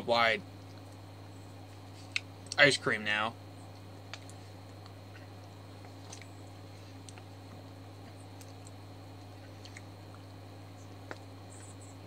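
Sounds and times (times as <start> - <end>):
steady low hum: 0.0 - 12.0
mouth and chewing sounds: 3.7 - 11.8.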